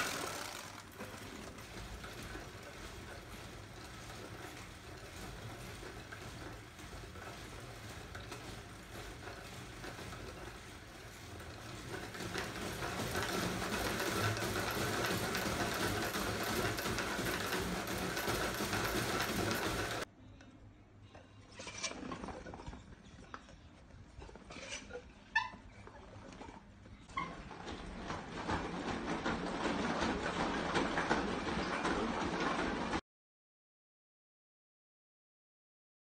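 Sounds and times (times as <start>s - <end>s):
bare feet on treadmill: 0.0s - 20.1s, 21.1s - 33.0s
wooden slats rattling over bearings: 0.0s - 20.1s, 27.2s - 33.0s.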